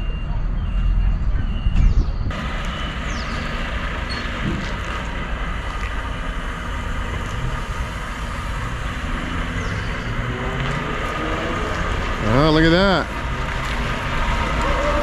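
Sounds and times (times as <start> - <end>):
truck diesel engine running: 2.3 - 15.0.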